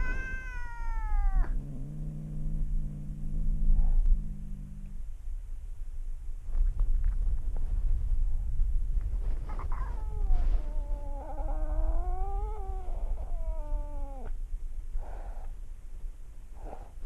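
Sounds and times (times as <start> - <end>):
cat yowling: 0.0 - 1.6, 9.5 - 14.3.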